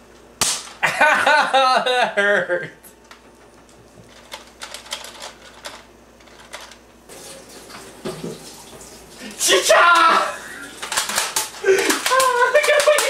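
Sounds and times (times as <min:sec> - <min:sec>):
toy gun plastic clicks: 0:10.8 - 0:13.0.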